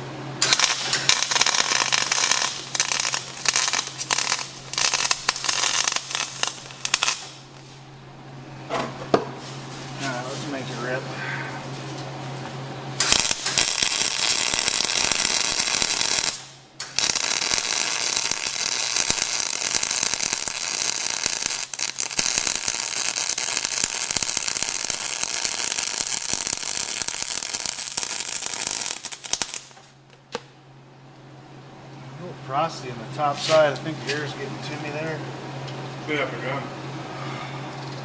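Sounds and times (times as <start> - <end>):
welding arc crackling: 0.4 - 7.6, 13.0 - 30.0.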